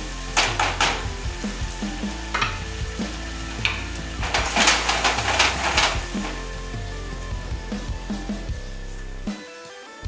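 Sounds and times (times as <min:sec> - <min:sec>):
shrimp and onion sizzling in a wok: 0:00.0 - 0:09.2
wooden spatula scraping a wok: 0:02.2 - 0:06.7.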